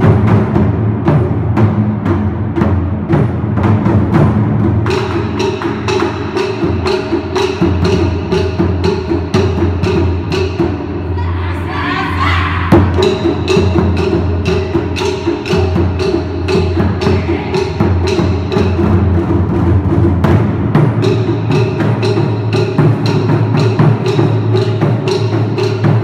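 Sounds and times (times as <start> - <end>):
deep barrel drum strokes: 0.0 - 11.2, 12.6 - 26.0
sharp drum strikes: 0.0 - 11.2, 12.6 - 26.0.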